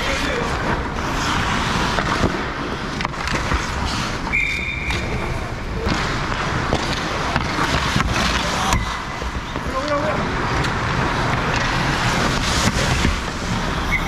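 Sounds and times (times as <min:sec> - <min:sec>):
skates scraping on ice: 0:00.0 - 0:14.0
sticks and puck knocking: 0:01.8 - 0:03.9, 0:05.8 - 0:10.0, 0:10.6 - 0:13.8
referee's whistle: 0:04.3 - 0:05.2.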